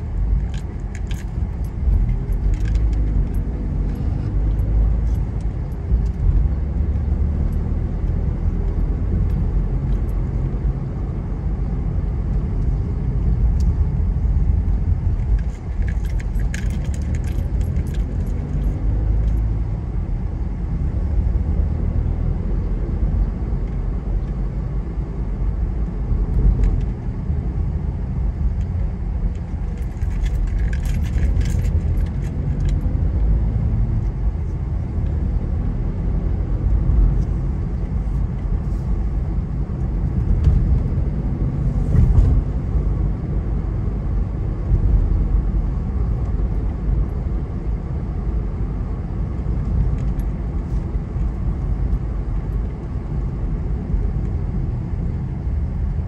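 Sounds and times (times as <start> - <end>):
car engine and tyres rumbling: 0.0 - 56.0
light clicking or rattling: 15.1 - 19.5, 29.3 - 32.9.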